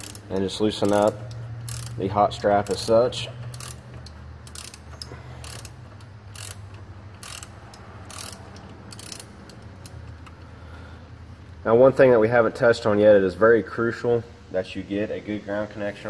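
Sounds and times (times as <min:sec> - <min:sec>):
ratchet clicking: 0:00.0 - 0:10.6.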